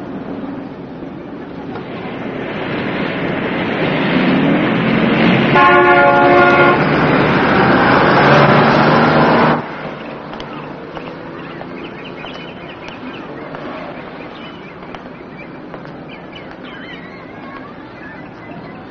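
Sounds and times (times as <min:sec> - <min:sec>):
heavy street traffic: 0:00.0 - 0:18.9
vehicle horn blaring: 0:05.5 - 0:07.0.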